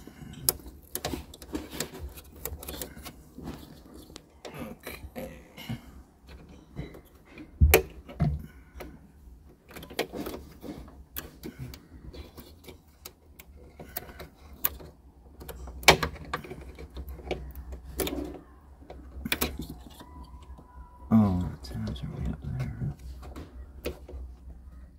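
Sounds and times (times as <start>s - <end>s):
plastic connectors clicking and knocking: 6.2s - 20.6s.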